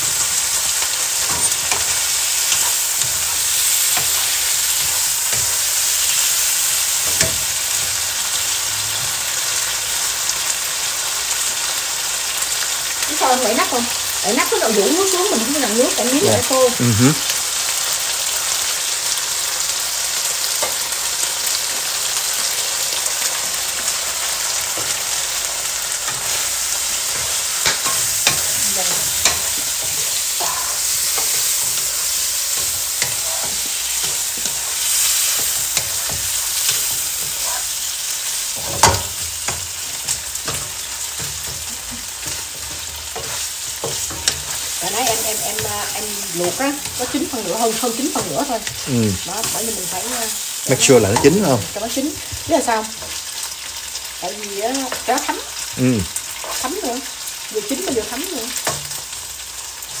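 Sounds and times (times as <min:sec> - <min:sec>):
wooden spatula scraping a pan: 0:00.0 - 0:08.0, 0:26.1 - 0:37.9, 0:38.5 - 0:50.1
vegetables sizzling in a wok: 0:00.0 - 1:00.0.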